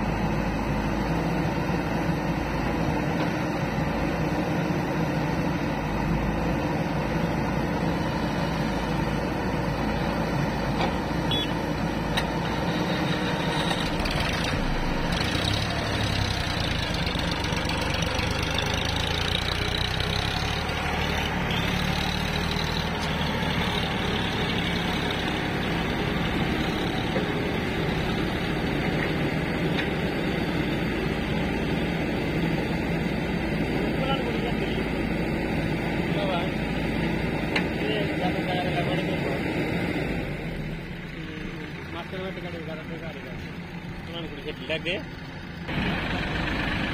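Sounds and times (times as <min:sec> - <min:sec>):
backhoe loader diesel engine: 0:00.0 - 0:46.9
tractor engine running: 0:00.0 - 0:46.9.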